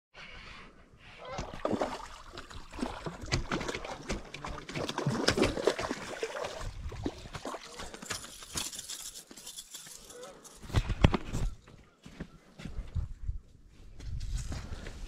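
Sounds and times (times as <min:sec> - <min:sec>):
fish splashing in water: 0:01.3 - 0:07.8.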